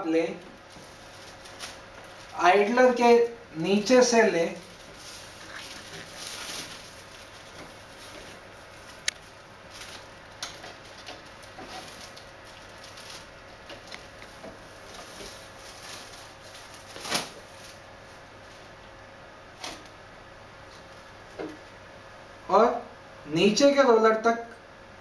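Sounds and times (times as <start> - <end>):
plastic film rustling and crinkling: 0.2 - 2.8, 3.8 - 18.9
plastic film crackle: 0.3 - 2.4, 3.8 - 18.7.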